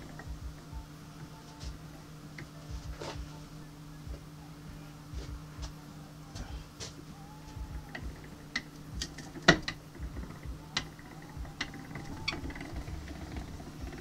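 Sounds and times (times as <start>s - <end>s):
steady low hum: 0.0s - 14.0s
crank gearing clicks and knocks: 7.9s - 14.0s.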